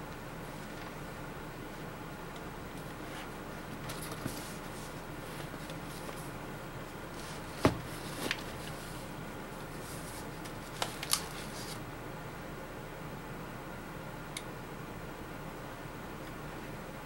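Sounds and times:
cardboard rustling: 3.0 - 6.3, 7.1 - 9.1.

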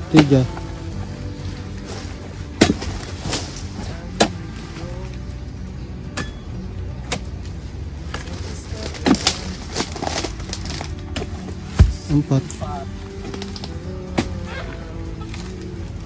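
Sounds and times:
chisel chopping strikes: 2.6 - 3.6, 6.1 - 7.4, 11.1 - 12.3.

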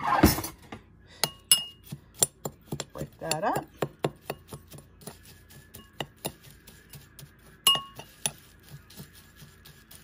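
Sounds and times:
spoon clinking against glass: 1.2 - 1.8, 7.6 - 8.4
spoon stirring oats in glass bowl: 1.2 - 10.0.

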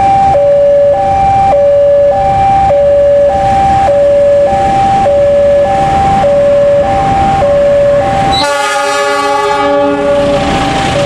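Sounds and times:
level-crossing alarm two-note warning: 0.0 - 10.4
rumble of approaching train: 0.0 - 11.0
diesel locomotive horn: 6.4 - 11.0.

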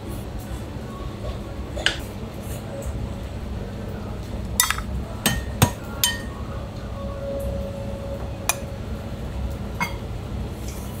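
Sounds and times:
ceramic dishes clinking: 4.6 - 6.4, 9.8 - 10.1.

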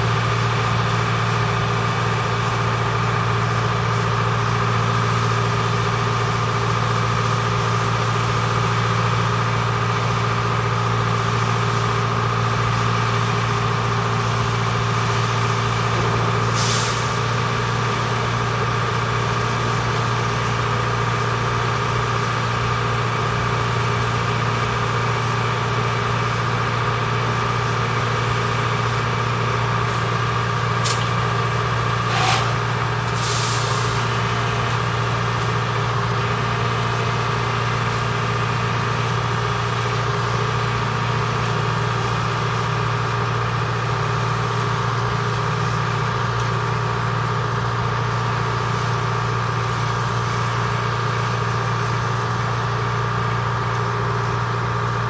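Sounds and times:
engine idling with deep hum: 0.0 - 55.0
air release hisses: 32.1 - 34.1.

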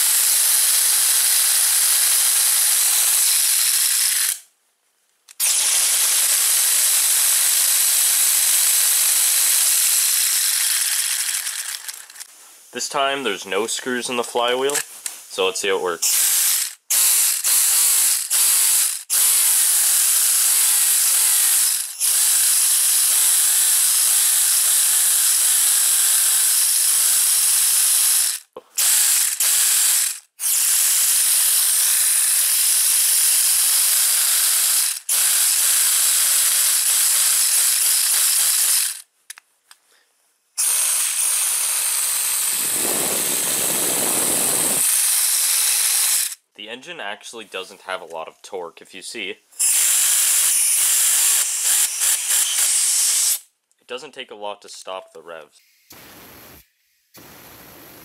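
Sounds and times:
compressed air hissing: 40.9 - 46.2, 55.6 - 58.0
air engine whirring: 42.6 - 44.8.

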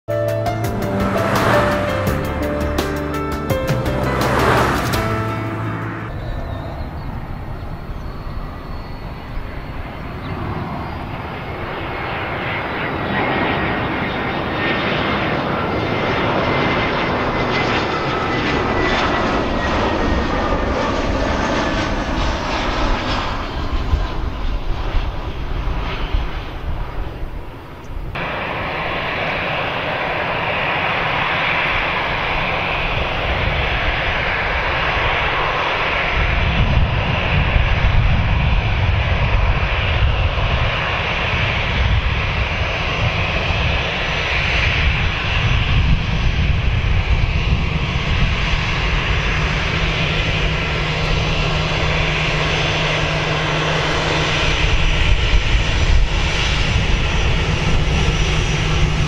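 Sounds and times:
falling whine: 0.1 - 10.0, 28.2 - 33.5
jet airliner passing: 0.1 - 59.0
jet engines taxiing: 0.1 - 59.0.

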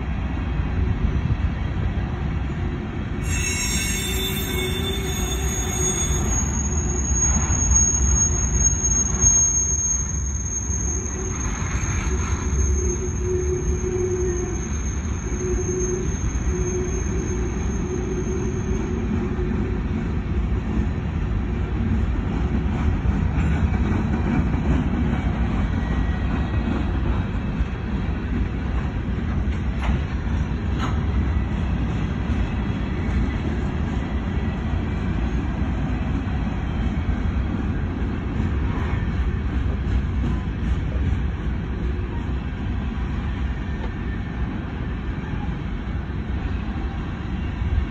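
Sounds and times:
train wheels rumbling on rails: 0.0 - 47.9
high-pitched wheel squeal: 3.2 - 19.5.

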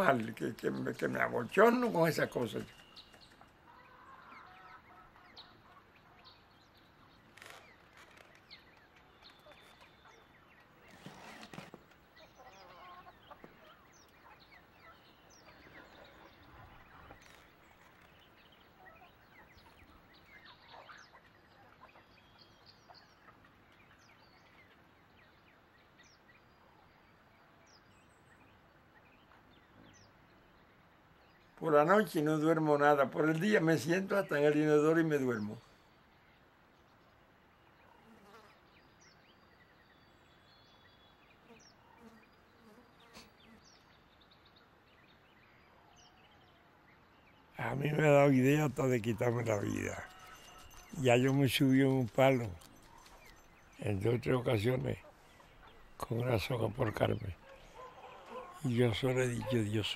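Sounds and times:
small birds chirping: 0.0 - 59.9
chickens clucking: 12.2 - 17.8, 47.6 - 59.9.

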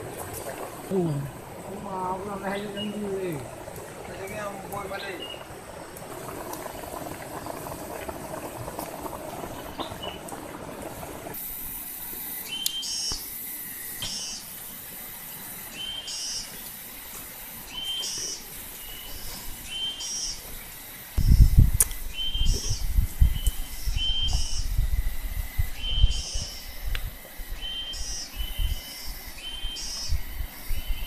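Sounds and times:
pulsing high hiss: 0.0 - 31.0
curry bubbling in a wok: 5.2 - 12.2.

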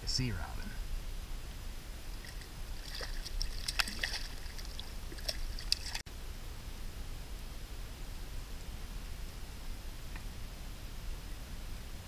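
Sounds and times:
steady low rumble: 0.0 - 12.0
water sloshing against kayak: 2.1 - 6.0
small splashes and clicks: 2.2 - 6.0.

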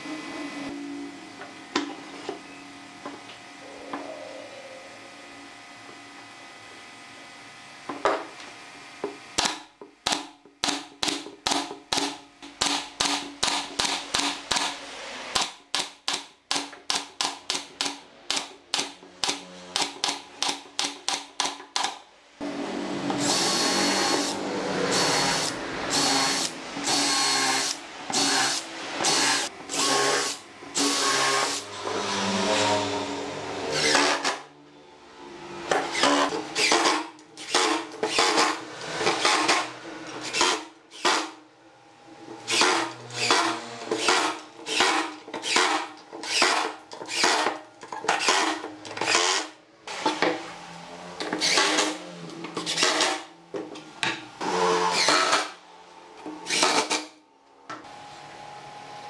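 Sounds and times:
nail gun firing into wood: 9.4 - 14.8, 40.3 - 41.4
impact driver driving screws: 33.7 - 34.4, 35.7 - 41.4, 42.4 - 50.2, 51.2 - 52.0, 52.6 - 53.3, 54.4 - 55.5, 56.4 - 57.1.

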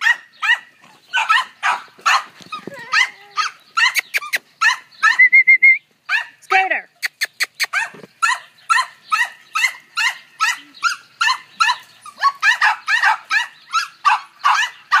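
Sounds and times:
dog barking: 0.0 - 4.0, 6.1 - 6.4, 7.7 - 15.0
dog yipping: 0.0 - 5.4, 7.6 - 15.0.

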